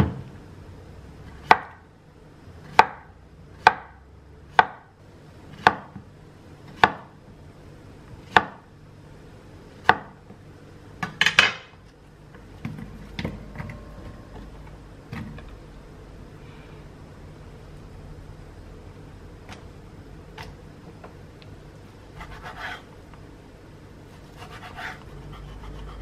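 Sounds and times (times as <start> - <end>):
knife chopping on wooden board: 1.4 - 1.8, 5.6 - 6.0, 6.7 - 7.1.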